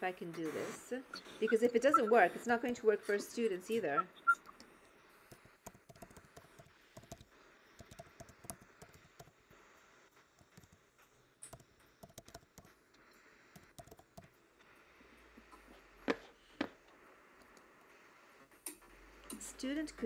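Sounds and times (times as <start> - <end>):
keyboard typing: 1.1 - 2.6, 5.3 - 9.4, 10.2 - 12.8, 13.6 - 14.4.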